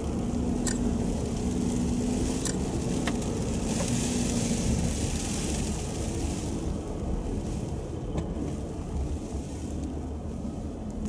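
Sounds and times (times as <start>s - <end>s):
car engine and tyre noise: 0.0s - 11.0s
sharp ticks: 0.6s - 0.9s.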